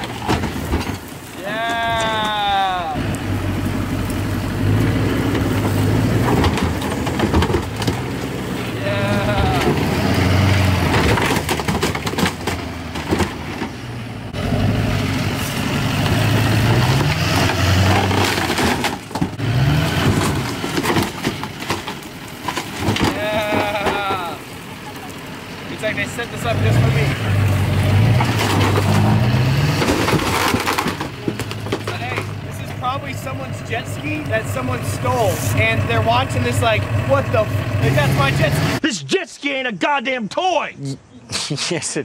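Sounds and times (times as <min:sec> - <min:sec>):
hull cracking under wheels: 0:00.0 - 0:14.4, 0:15.4 - 0:38.4
truck engine revving: 0:00.0 - 0:38.8.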